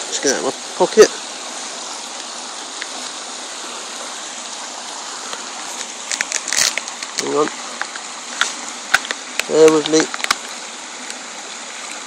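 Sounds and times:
floodwater rushing: 0.0s - 12.0s
handling clicks and rustles: 5.3s - 11.2s.

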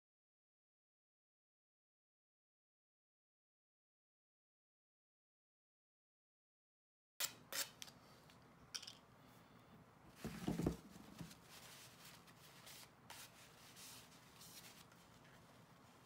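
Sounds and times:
dull knock: 10.2s - 10.9s
tissue rubbing on wood: 10.8s - 16.0s.

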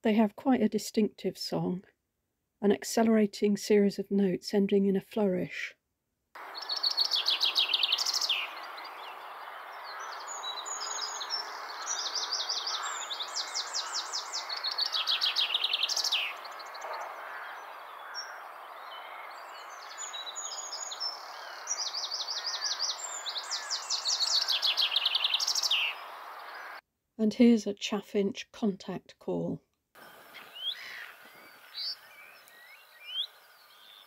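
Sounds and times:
finch singing: 6.4s - 26.8s, 30.1s - 34.0s.

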